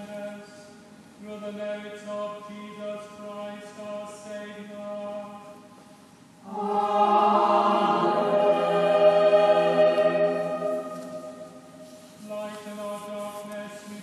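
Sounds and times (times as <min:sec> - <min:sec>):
choir chanting: 0:06.4 - 0:12.0.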